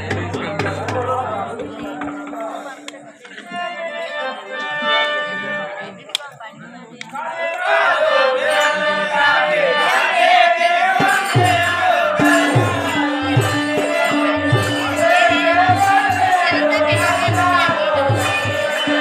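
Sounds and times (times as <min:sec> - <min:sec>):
hand drum beat: 0:00.0 - 0:03.4, 0:11.1 - 0:19.0
harmonium held tones: 0:00.0 - 0:06.2, 0:07.6 - 0:19.0
person singing: 0:07.0 - 0:19.0.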